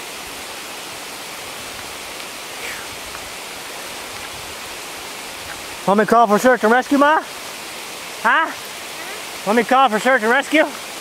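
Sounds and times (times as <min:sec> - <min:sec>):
rain on leaves: 0:00.0 - 0:11.0.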